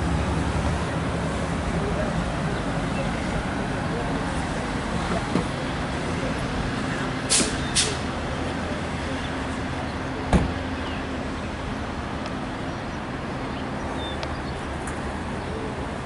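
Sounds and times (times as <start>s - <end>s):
train engine humming: 0.0s - 16.0s
short hisses: 7.3s - 8.0s.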